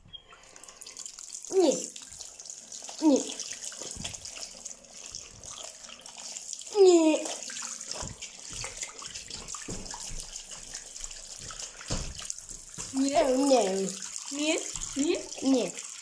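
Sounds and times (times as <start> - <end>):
tap running into sink: 3.7 - 5.7, 7.4 - 15.4.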